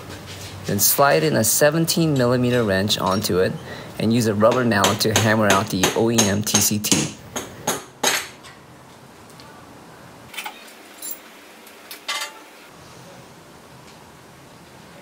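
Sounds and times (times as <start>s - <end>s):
metal tools clinking: 10.3s - 11.3s, 12.0s - 12.5s.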